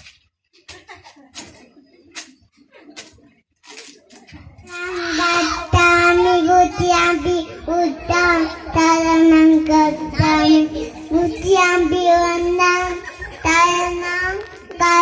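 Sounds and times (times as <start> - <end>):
boy chanting into microphone: 4.7 - 15.0.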